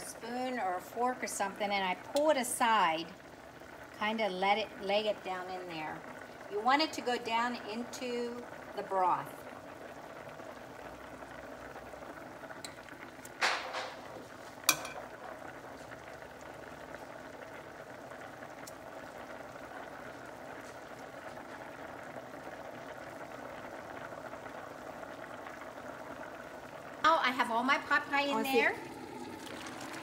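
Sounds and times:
broth bubbling in a pot: 0:00.0 - 0:30.0.

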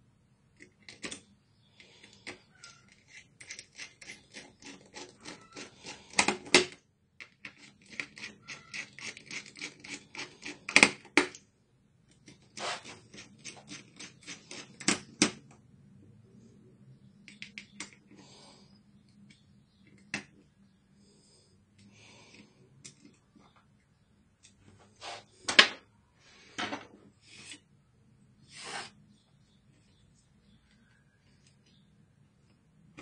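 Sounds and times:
small clicks of parts being handled: 0:00.6 - 0:08.3, 0:17.2 - 0:18.2, 0:21.7 - 0:24.6.

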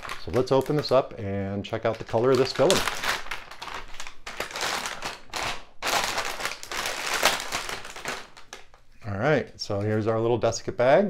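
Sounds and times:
plastic bag crinkling: 0:00.0 - 0:01.1, 0:01.7 - 0:09.0.

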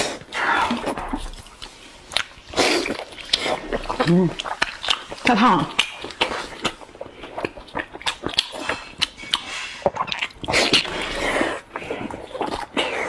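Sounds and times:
breathing over hot food: 0:00.0 - 0:01.2, 0:10.5 - 0:13.0
wet chewing and lip smacks: 0:00.0 - 0:13.0.

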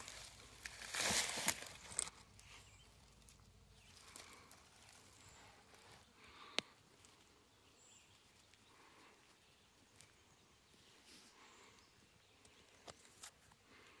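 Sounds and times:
gloved hands handling rock: 0:00.0 - 0:09.0.

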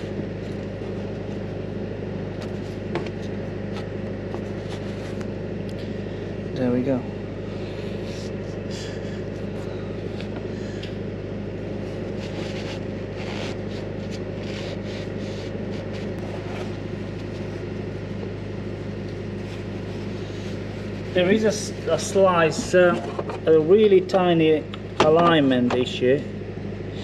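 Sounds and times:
rag scratching and rustling: 0:12.0 - 0:17.5.

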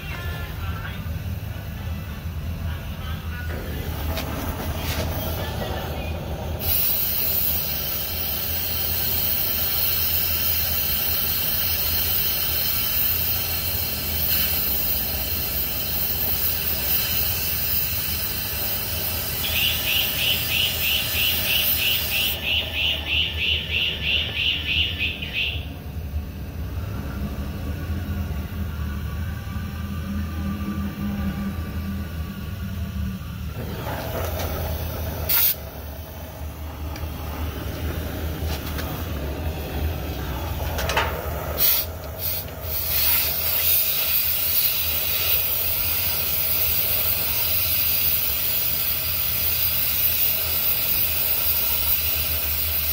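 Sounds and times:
air blast hissing: 0:03.5 - 0:52.9
fast pulsing whistle: 0:19.2 - 0:25.7.

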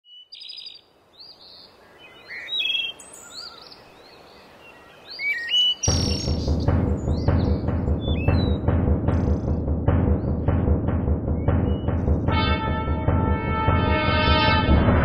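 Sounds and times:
faint forest hiss: 0:00.1 - 0:06.6
birds chirping and whistling: 0:00.1 - 0:12.3
low drum rumble: 0:05.9 - 0:15.0.

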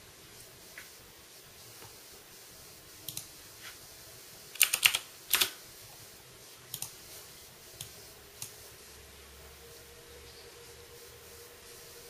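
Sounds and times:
faint whir of computer fans: 0:00.0 - 0:12.0
computer keyboard keys clicking: 0:04.6 - 0:05.6, 0:06.7 - 0:07.0.

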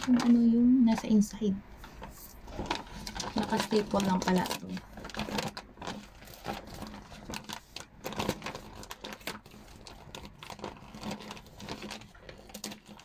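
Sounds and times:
paper bag crinkling and rustling: 0:00.0 - 0:13.0.

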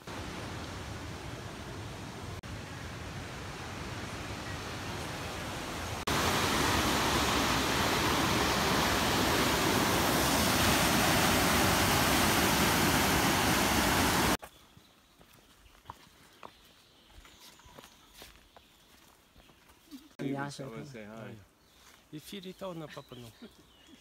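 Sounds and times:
river rapids rushing over rocks: 0:06.1 - 0:14.4.

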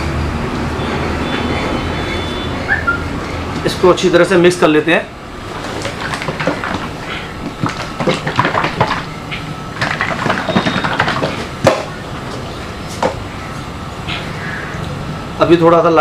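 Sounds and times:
paint sloshing in a tin: 0:05.4 - 0:12.4.

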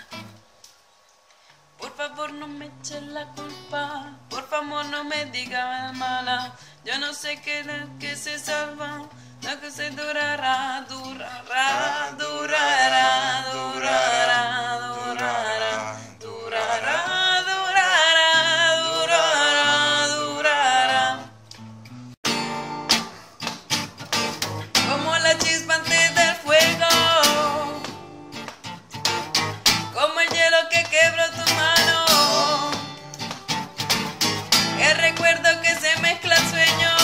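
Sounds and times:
acoustic guitar: 0:00.0 - 0:37.0
person singing wordlessly: 0:01.8 - 0:21.4, 0:24.7 - 0:28.0, 0:29.9 - 0:33.2, 0:34.8 - 0:37.0.

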